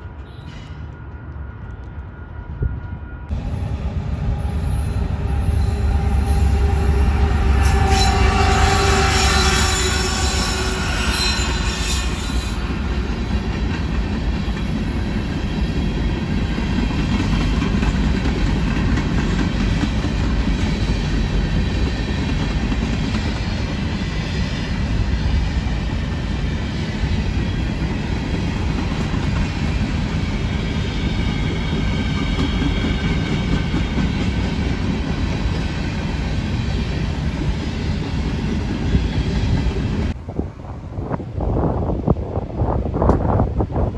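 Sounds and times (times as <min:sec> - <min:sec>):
train wheels squealing: 0:00.0 - 0:03.6, 0:04.3 - 0:17.6
train wheels rumbling on rail: 0:00.0 - 0:43.9.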